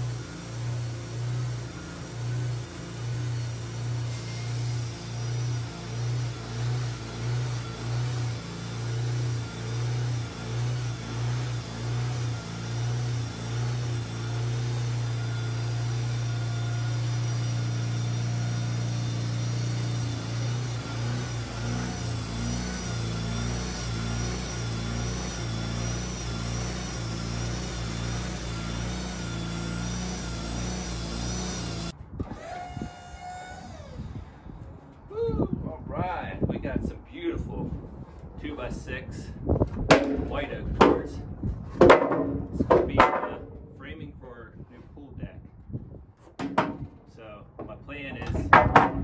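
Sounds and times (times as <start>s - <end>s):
band blade cutting wood: 0.0s - 33.8s
sawmill engine humming: 0.0s - 35.3s.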